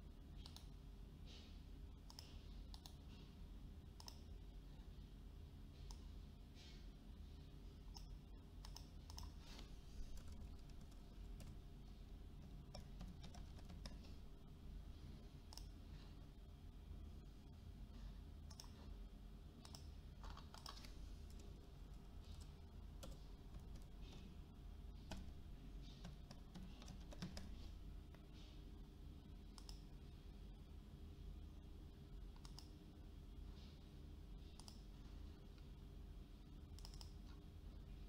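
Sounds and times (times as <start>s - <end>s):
steady low hum: 0.0s - 38.0s
keyboard and mouse clicks: 0.4s - 0.8s, 2.0s - 3.0s, 4.0s - 4.3s, 7.9s - 11.6s, 12.3s - 14.2s, 15.5s - 15.8s, 18.5s - 18.9s, 19.6s - 24.4s, 25.0s - 27.7s, 29.5s - 29.9s, 32.3s - 32.8s, 34.6s - 35.0s, 36.7s - 37.4s.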